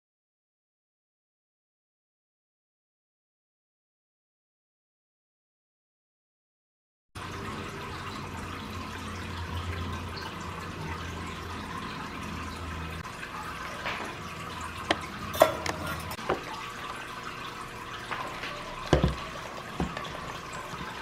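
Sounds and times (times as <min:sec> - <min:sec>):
liquid pouring into metal pitcher: 0:07.2 - 0:21.0.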